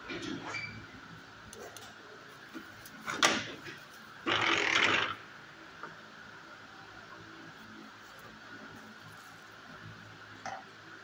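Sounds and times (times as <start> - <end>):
brief squeak: 0.4 - 0.9
loud harsh rattle: 4.2 - 5.2.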